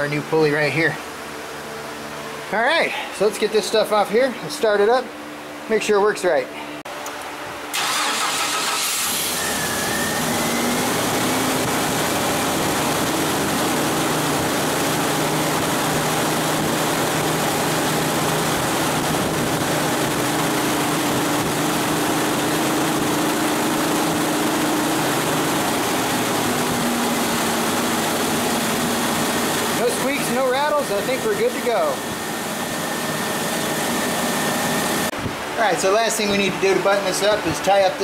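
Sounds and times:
truck engine idling: 19.7 - 35.1.

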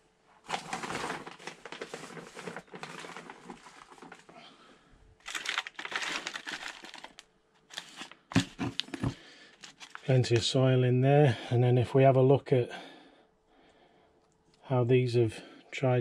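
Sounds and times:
soil and plastic pots rustling: 0.4 - 10.5.

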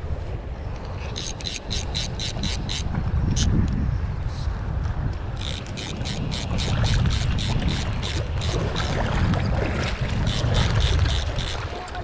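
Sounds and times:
wind on microphone: 0.0 - 12.0
fly reel ratcheting clicks: 1.0 - 3.5, 5.4 - 9.0, 10.3 - 11.6.

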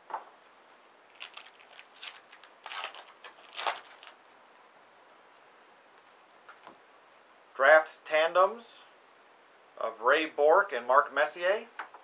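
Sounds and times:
foil wrapper crinkling: 1.1 - 4.2.

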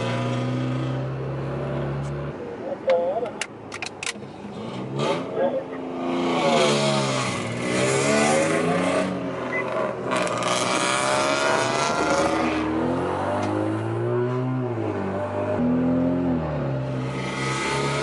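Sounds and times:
car engine accelerating hard: 4.4 - 18.0.

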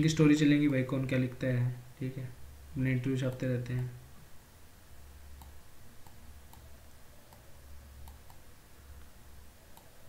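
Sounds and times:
computer mouse clicking: 5.4 - 6.7, 7.3 - 8.4, 9.7 - 10.0.

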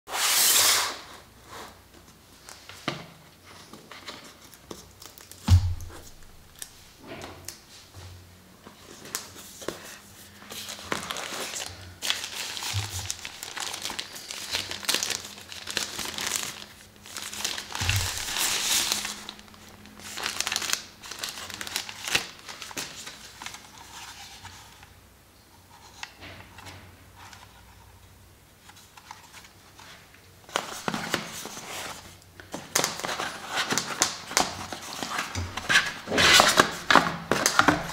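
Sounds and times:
cardboard box thump: 5.5 - 6.2
protective wrap crinkling: 10.3 - 24.2.

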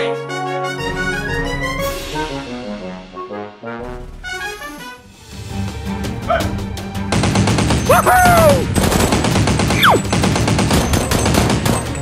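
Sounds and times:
rapid automatic gunfire: 7.1 - 12.0.

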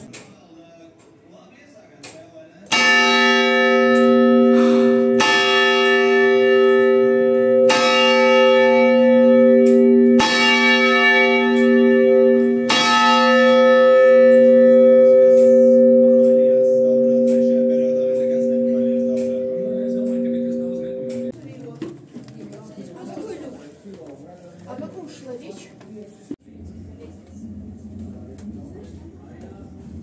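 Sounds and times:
church bell ringing: 2.7 - 21.4.

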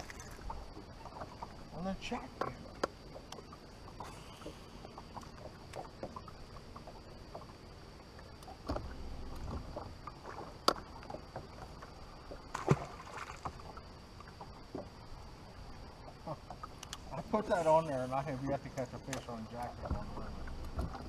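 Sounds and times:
fish splashing into water: 0.0 - 0.5, 12.4 - 13.7
dull low thump: 19.8 - 21.0
knocks on boat deck: 19.8 - 21.0.

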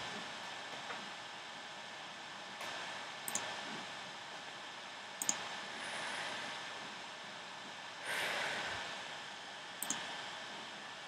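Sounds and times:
computer mouse clicks: 3.3 - 3.5, 5.2 - 5.4, 9.8 - 10.1.

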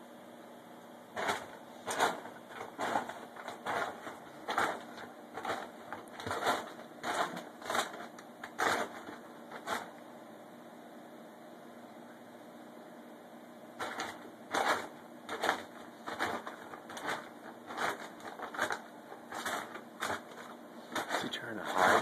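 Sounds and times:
dog food bag rustling: 1.2 - 9.9, 13.8 - 22.0.

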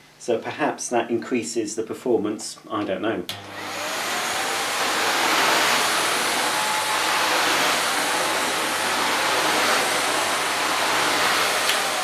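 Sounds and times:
vacuum cleaner on carpet: 3.3 - 12.0.

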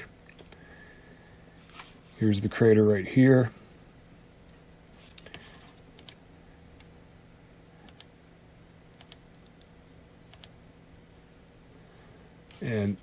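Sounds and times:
low steady hum: 0.0 - 13.0
computer mouse clicks: 5.1 - 6.2, 7.8 - 8.1, 9.0 - 9.7, 10.3 - 10.6.

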